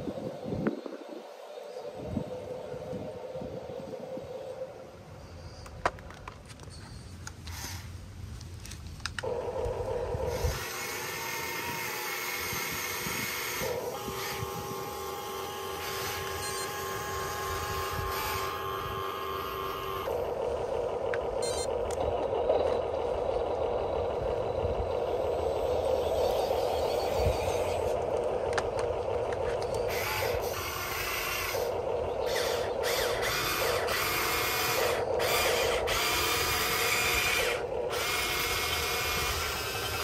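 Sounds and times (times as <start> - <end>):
electric motor whine: 9.2 - 40.0.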